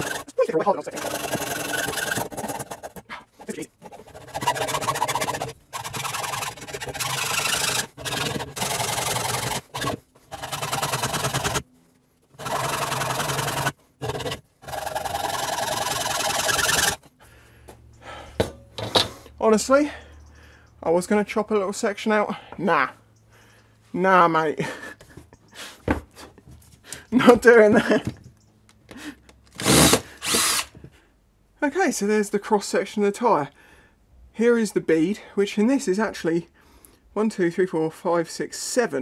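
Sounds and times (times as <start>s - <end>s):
hacksaw rasping through tyre: 0.0s - 11.6s, 12.4s - 17.0s.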